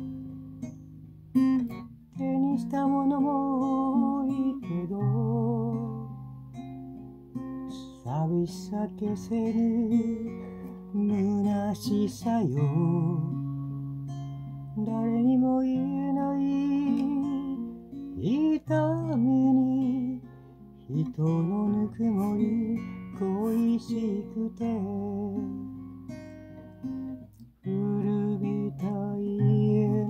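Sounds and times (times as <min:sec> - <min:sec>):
acoustic guitar strumming: 0:00.0 - 0:30.0
person singing with vibrato: 0:20.9 - 0:25.8, 0:27.6 - 0:30.0.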